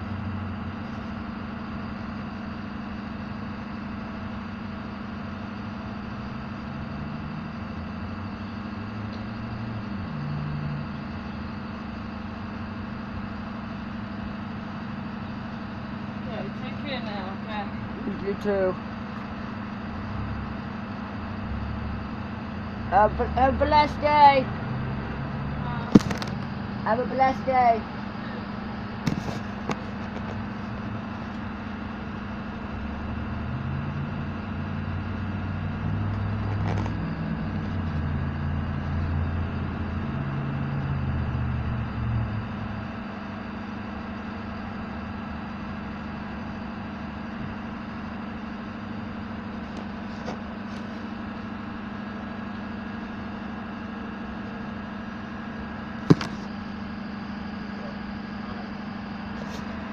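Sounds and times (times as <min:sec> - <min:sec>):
engine idling: 0:00.0 - 0:59.9
sharp knock: 0:56.1 - 0:56.4.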